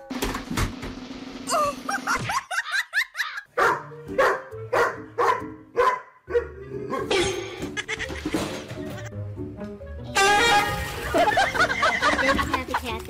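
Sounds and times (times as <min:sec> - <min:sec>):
dog barking: 0:03.6 - 0:07.1.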